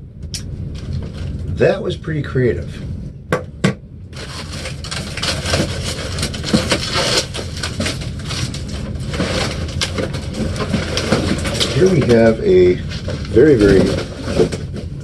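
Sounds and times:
cardboard box scraping and crackling: 4.2 - 15.0.

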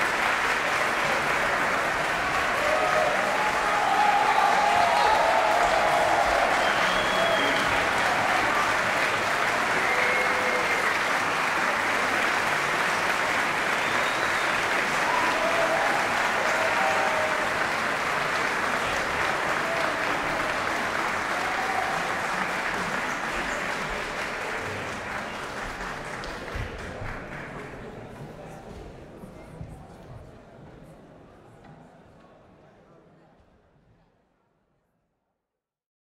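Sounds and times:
audience applauding: 0.0 - 28.2.

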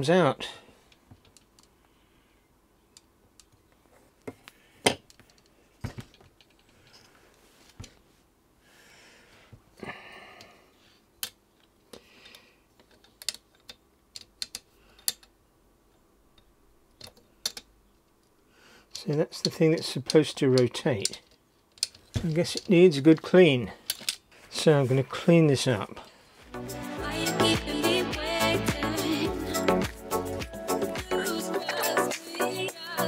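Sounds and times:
plastic and metal parts clicking: 11.2 - 15.4, 16.3 - 18.3, 18.9 - 24.3.

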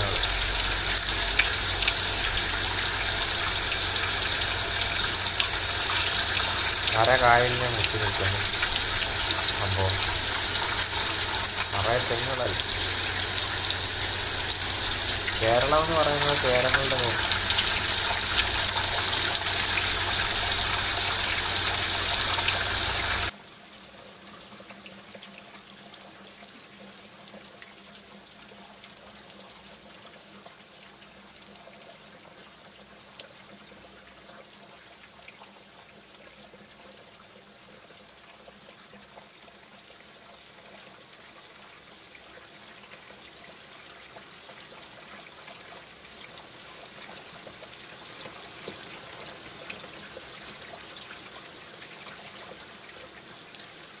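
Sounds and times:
low hum: 0.0 - 23.3
rushing water: 0.0 - 23.3.

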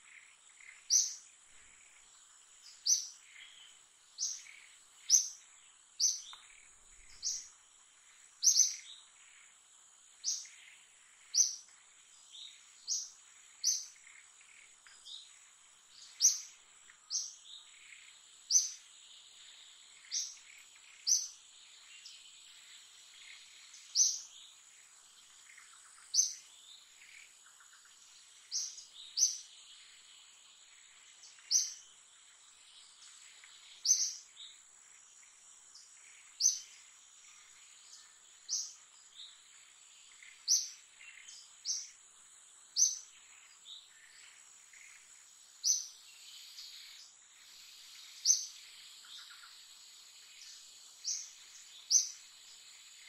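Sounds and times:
bird chirping: 0.0 - 53.0
high insect drone: 0.0 - 53.0.

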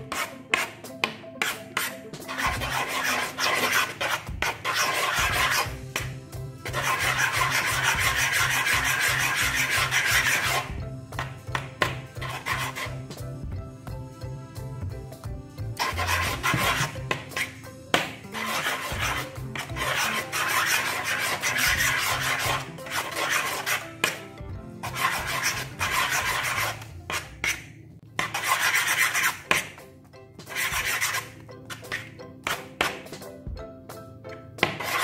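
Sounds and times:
spoon scraping slime on glass: 18.3 - 23.8.

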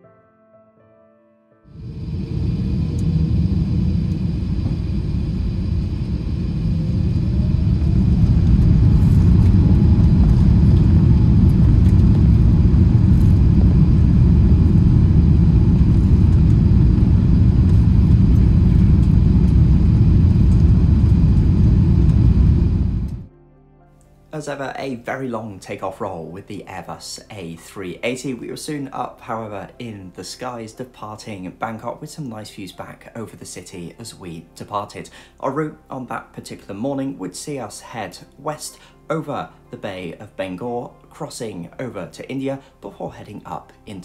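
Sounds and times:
jet engines rumbling on takeoff: 1.7 - 23.3.

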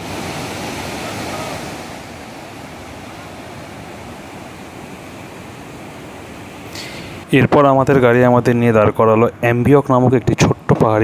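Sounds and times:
river rushing over rocks: 0.0 - 7.3.

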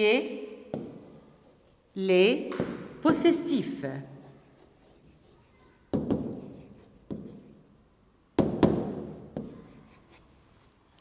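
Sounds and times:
pen knocking on glass: 0.7 - 1.0, 2.5 - 3.0, 5.9 - 7.4, 8.4 - 9.6.

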